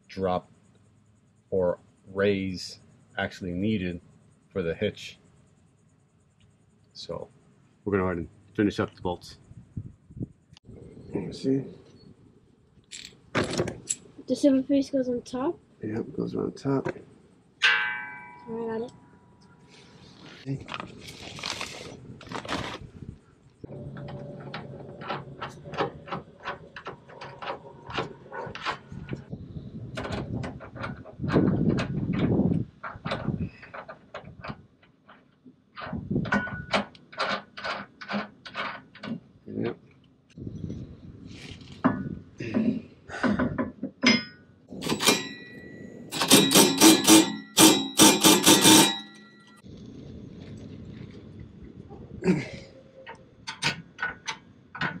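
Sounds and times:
metal parts and tools clanking: 12.8 - 14.1, 23.6 - 29.3, 30.0 - 39.2, 41.4 - 49.7
loud ringing metal strikes: 17.6 - 19.3, 44.1 - 49.6
short metallic clicks and knocks: 43.3 - 49.6.

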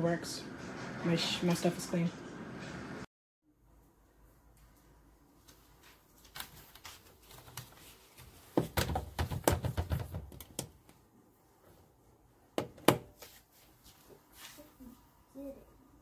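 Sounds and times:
plastic lid and tub knocking: 8.6 - 10.6.

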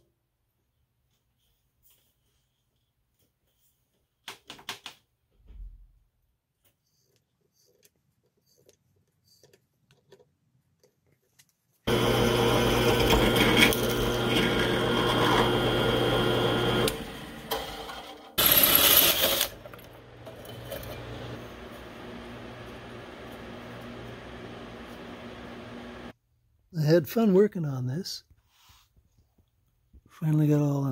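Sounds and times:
cordless drill cutting steel: 11.9 - 26.1
drill press motor humming: 11.9 - 26.1.

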